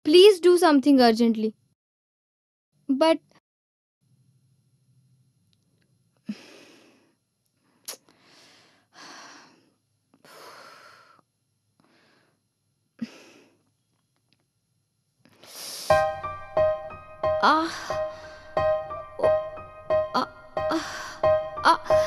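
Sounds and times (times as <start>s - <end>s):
woman breathing heavily and sighing: 6.2s - 13.7s, 17.4s - 19.6s, 20.2s - 22.0s
piano music: 15.9s - 22.0s.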